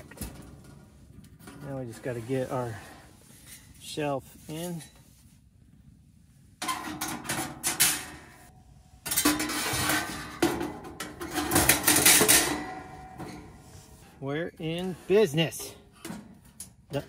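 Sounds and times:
metal oven shelf scraping: 9.1s - 16.5s.

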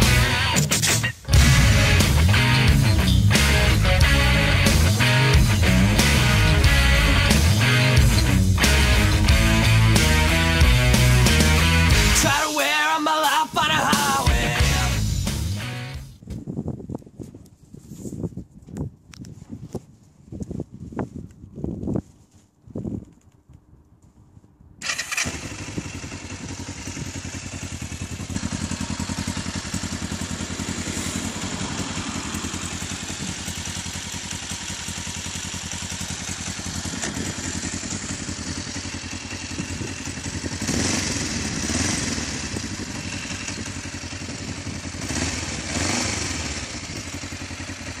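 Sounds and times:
motorcycle engine revving: 0.0s - 12.3s, 24.8s - 48.0s
motorcycle engine idling: 0.0s - 12.4s, 24.8s - 48.0s.

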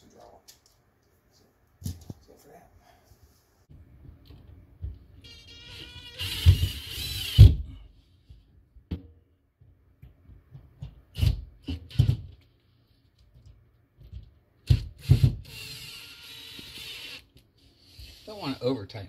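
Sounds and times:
cordless drill whining and grinding: 5.3s - 7.5s, 15.0s - 18.4s.

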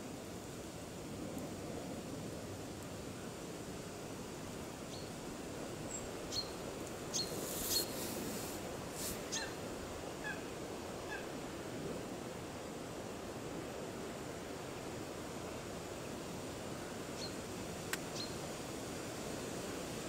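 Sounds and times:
bird chirps: 5.9s - 8.0s.

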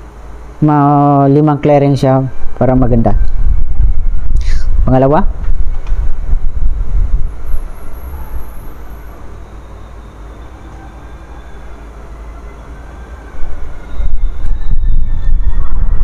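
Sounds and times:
printer mechanical rumble and whir: 0.0s - 16.0s.

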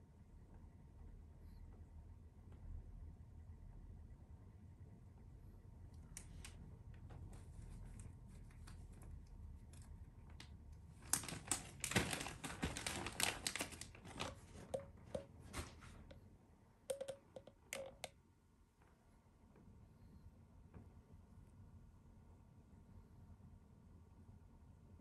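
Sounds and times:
plastic packet crinkling: 11.0s - 15.3s.

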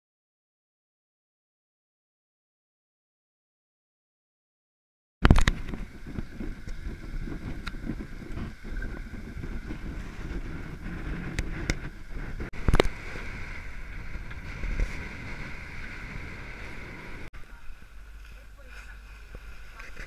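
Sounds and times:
wind buffeting microphone: 5.2s - 20.0s
rushing water: 5.3s - 20.0s.

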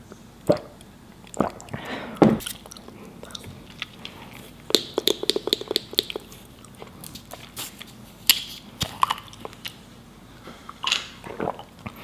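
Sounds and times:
wet chewing mouth clicks: 2.4s - 7.9s.

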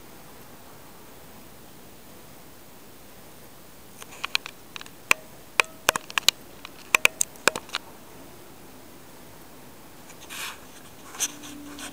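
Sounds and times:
soft rustle: 3.9s - 11.9s
sharp clicks and taps: 4.0s - 7.8s.

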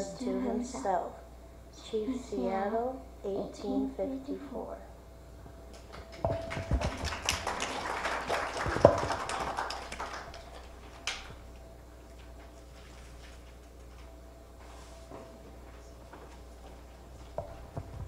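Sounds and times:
microphone handling noise: 17.3s - 18.0s.

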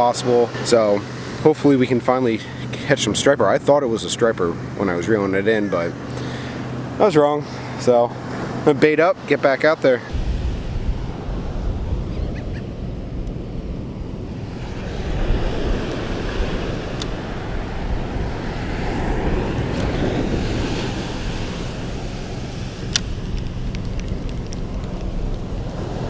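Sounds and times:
ocean surf breaking on beach: 0.0s - 26.0s
wind rumbling on microphone: 10.1s - 26.0s.

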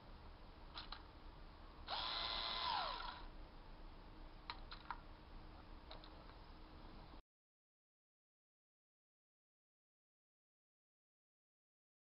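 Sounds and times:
cordless screwdriver motor whine: 1.9s - 3.3s.

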